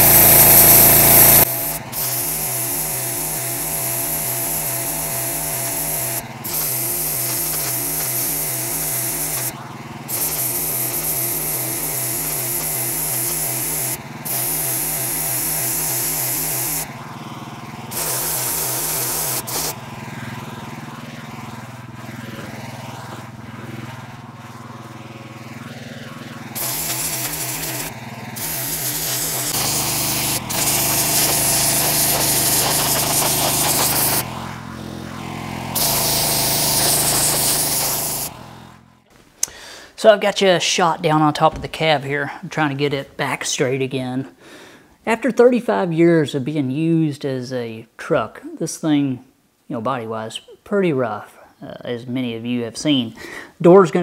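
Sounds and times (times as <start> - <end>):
sandblaster hissing: 0.0 - 17.0, 17.9 - 20.2, 26.4 - 38.8
engine pulsing: 0.0 - 39.1.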